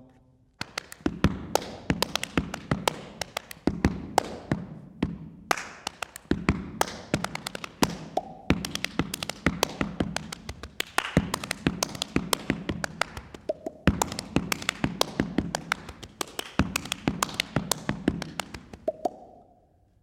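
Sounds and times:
hands clapping and slapping body: 0.6 - 19.5.

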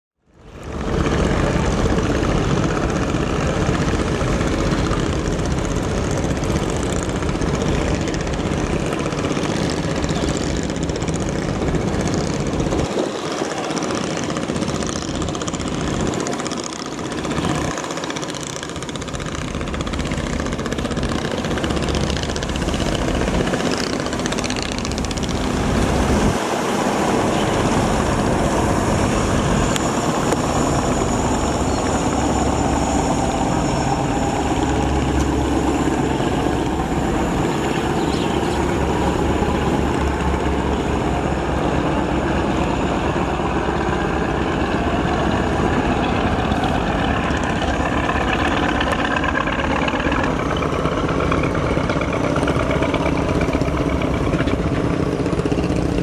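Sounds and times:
boat engine drone: 0.2 - 56.0
water rushing from bow wave: 0.5 - 37.7.

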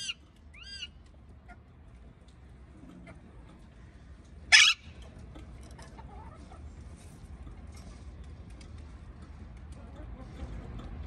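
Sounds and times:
parakeet squawk: 0.0 - 0.9, 4.5 - 4.9
low steady hum: 0.0 - 11.0.

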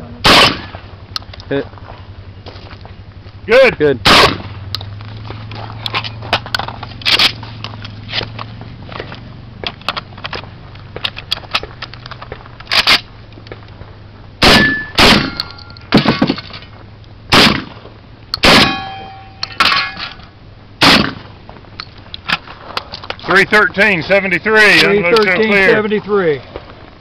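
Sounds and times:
distant gunshots: 0.2 - 0.9, 4.0 - 4.7, 14.4 - 16.4, 17.3 - 17.8, 18.4 - 19.2, 20.8 - 21.3
rifle gunshots: 0.2 - 0.9, 4.0 - 4.6, 14.4 - 16.4, 17.3 - 17.8, 18.4 - 19.8, 20.8 - 21.3
metallic ring of steel target: 14.4 - 16.7, 18.4 - 21.2.

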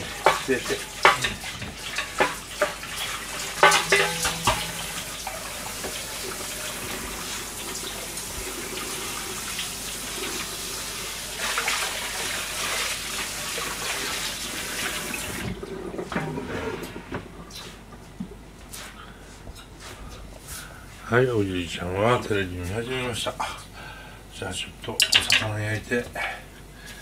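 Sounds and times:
tap water running into sink: 0.0 - 15.4, 25.0 - 25.5.

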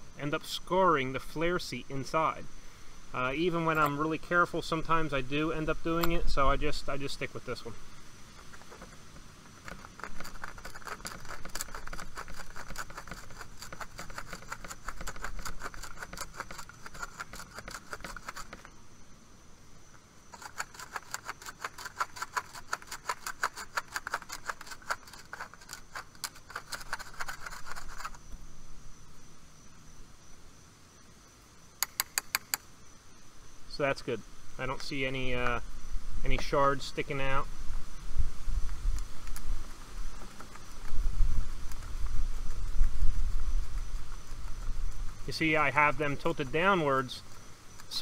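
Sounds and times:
reamer scraping copper tube: 8.4 - 18.7, 20.3 - 28.3.

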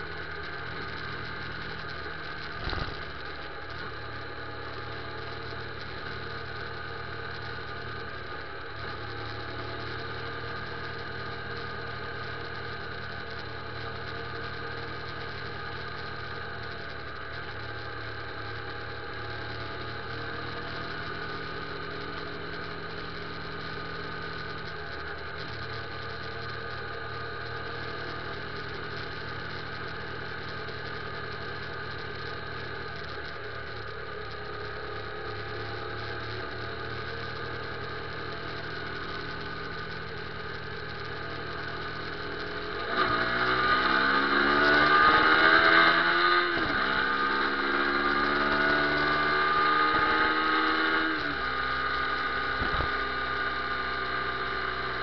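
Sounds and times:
motorcycle engine revving: 0.0 - 3.5, 37.0 - 55.0.

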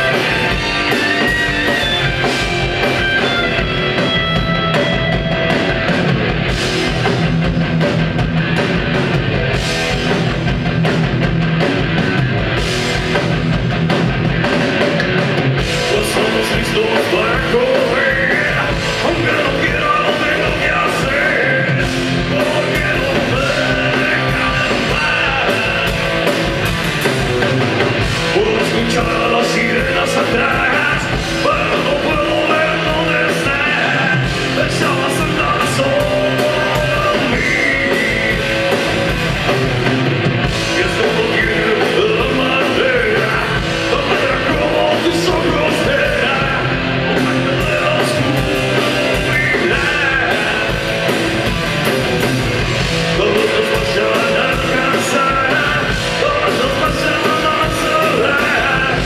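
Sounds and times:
bass guitar: 0.0 - 59.0
drum kit: 0.0 - 59.0
electric guitars: 0.0 - 59.0
person singing: 15.7 - 26.5, 28.2 - 39.0, 40.6 - 51.2, 53.0 - 59.0.

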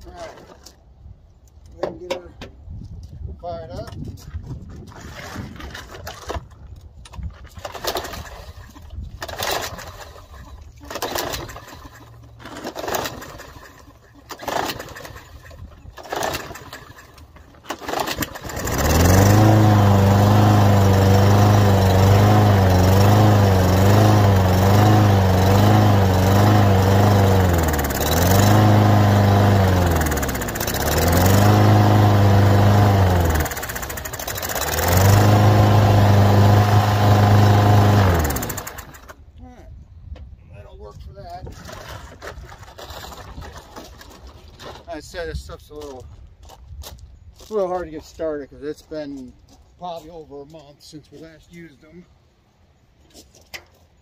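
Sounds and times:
recoil starter pulls: 5.1 - 39.2
lawn mower engine running: 7.6 - 39.2.

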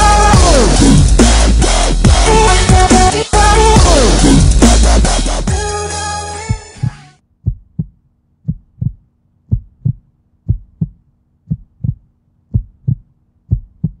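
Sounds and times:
heartbeat thumps: 6.5 - 14.0.

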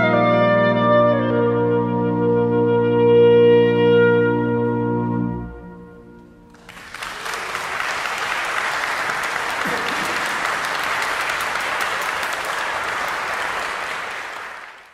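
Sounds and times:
audience clapping: 6.5 - 14.9.

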